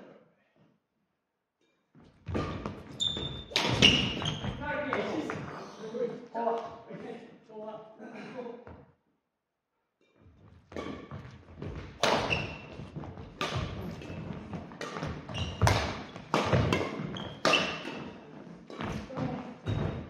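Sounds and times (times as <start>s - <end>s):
court shoes squeaking: 1.6s - 5.7s, 10.0s - 20.0s
rackets striking shuttlecock: 3.5s - 4.2s, 12.0s - 18.1s.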